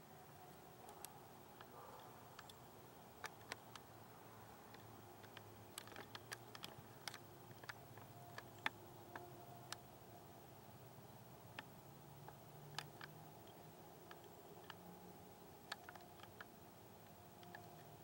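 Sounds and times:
faint sharp clicks: 0:00.8 - 0:03.9, 0:04.7 - 0:09.9, 0:11.5 - 0:14.9, 0:15.6 - 0:18.0.

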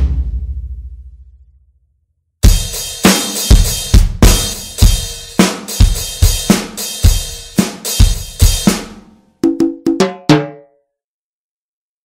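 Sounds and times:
pitched drum fill: 0:00.0 - 0:01.4, 0:02.4 - 0:10.7
sharp drum hits: 0:00.0 - 0:01.4.

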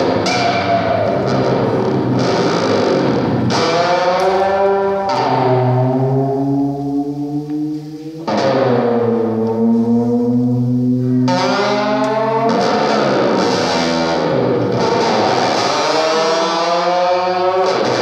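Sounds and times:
distorted electric guitar: 0:00.0 - 0:18.0.

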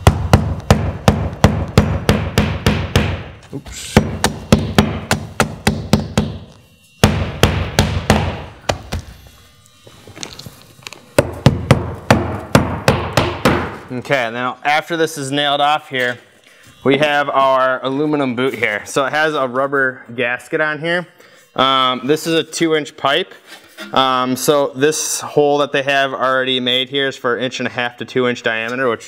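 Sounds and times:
hammer striking roofing nails: 0:00.0 - 0:03.4, 0:04.0 - 0:09.0, 0:11.2 - 0:13.8.

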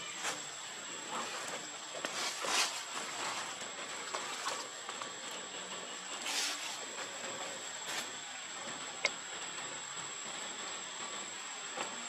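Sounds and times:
dry leaves rustling: 0:00.0 - 0:05.4, 0:06.1 - 0:08.2
outdoor hiss: 0:00.0 - 0:12.0.

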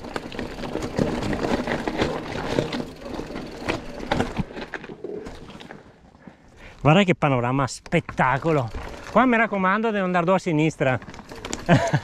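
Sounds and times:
bike knocks and rattles: 0:00.0 - 0:05.5, 0:10.4 - 0:12.0
tyres on stony trail: 0:00.0 - 0:12.0.

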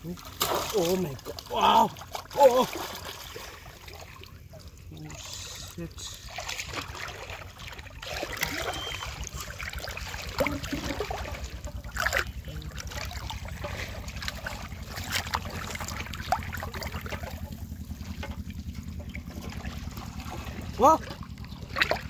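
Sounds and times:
water sloshing and splashing: 0:00.0 - 0:22.0
metal pot pushed through water: 0:05.6 - 0:22.0.

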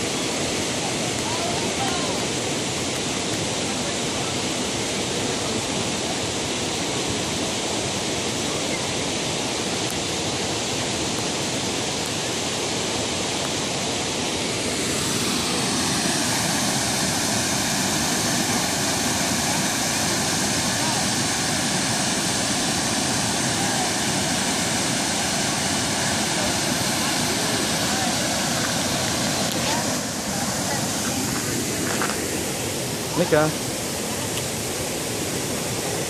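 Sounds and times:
water flowing over rocks: 0:00.0 - 0:36.0
waterfall rushing: 0:00.0 - 0:36.0.

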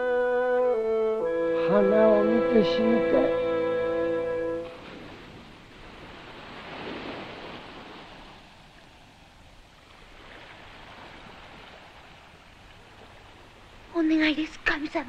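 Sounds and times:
waves washing on rocky shore: 0:04.6 - 0:15.0.

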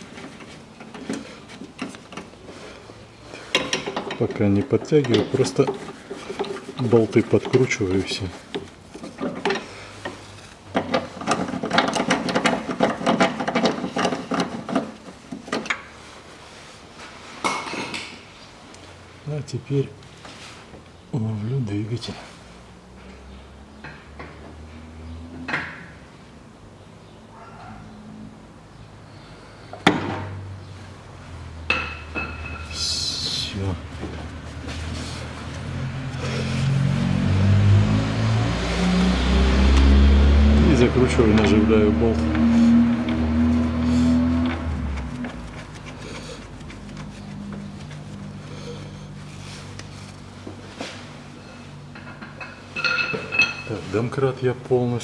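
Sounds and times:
engine running low hum: 0:20.9 - 0:52.8.

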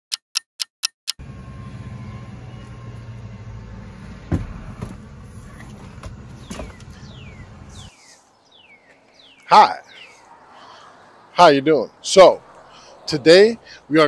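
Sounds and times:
low vehicle hum: 0:01.2 - 0:09.4.

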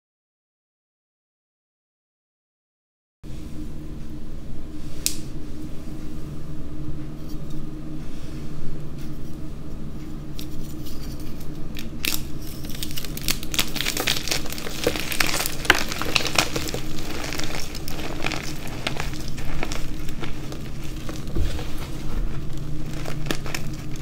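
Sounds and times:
chalk crunching and crackling: 0:10.4 - 0:24.0
chalk block cracking: 0:11.0 - 0:24.0.

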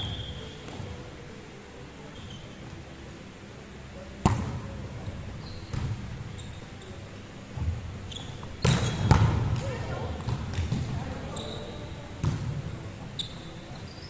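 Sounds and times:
sneakers squeaking on court floor: 0:00.0 - 0:00.9, 0:02.1 - 0:02.6, 0:05.0 - 0:07.0, 0:07.6 - 0:09.4, 0:10.2 - 0:12.4, 0:13.0 - 0:14.0
volleyball being hit: 0:04.2 - 0:04.6, 0:08.6 - 0:11.0.

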